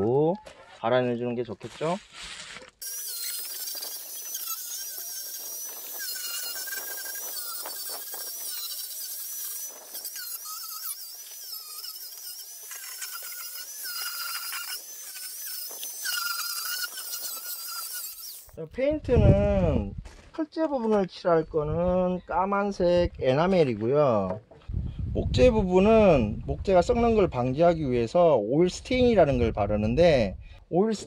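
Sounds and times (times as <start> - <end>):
angle grinder sanding wood: 2.8 - 18.6.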